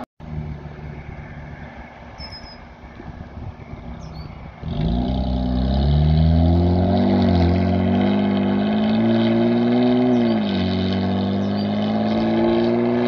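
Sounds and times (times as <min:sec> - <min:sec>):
car engine accelerating: 0:04.5 - 0:13.0.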